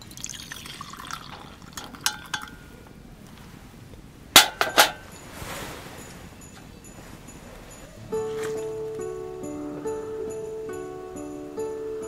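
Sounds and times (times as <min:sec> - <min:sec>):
hot drink pouring into glass mug: 0:00.0 - 0:02.6
metal clinking against glass: 0:01.7 - 0:02.7, 0:04.4 - 0:05.4
sharp clinks on metal mesh table: 0:04.4 - 0:05.2.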